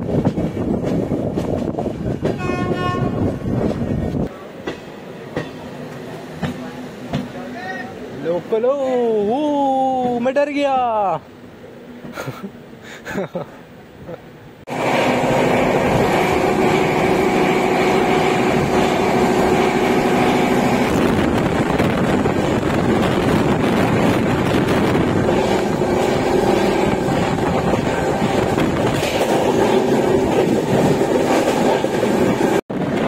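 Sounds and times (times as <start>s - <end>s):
train wheels on rails: 0.0s - 8.7s, 14.7s - 33.0s
passing train: 0.0s - 33.0s
rushing air: 14.6s - 33.0s.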